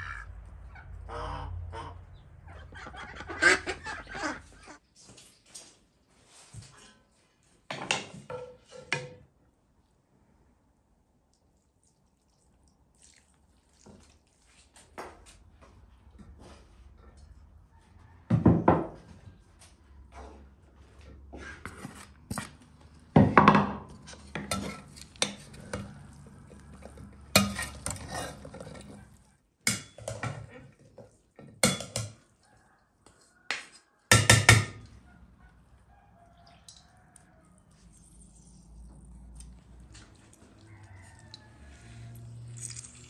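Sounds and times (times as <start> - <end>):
spoons scraping a bowl: 21.4 - 22.9, 23.9 - 30.6, 41.1 - 43.0.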